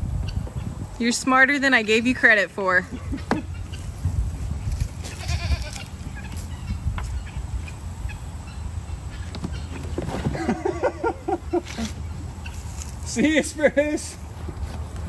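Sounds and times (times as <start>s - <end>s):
steady low rumble: 0.0s - 13.0s
poultry calling: 2.8s - 4.0s, 4.9s - 12.8s
goats bleating: 5.0s - 5.9s.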